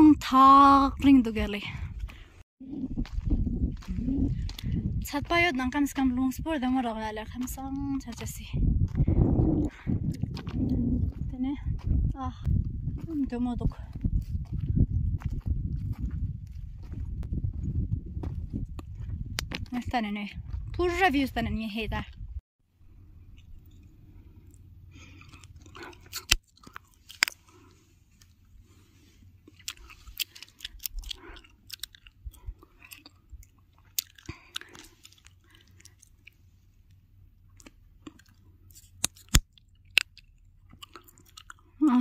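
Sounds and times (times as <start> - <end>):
wind on microphone: 0.0 - 22.4
footsteps on gravel: 2.0 - 22.1.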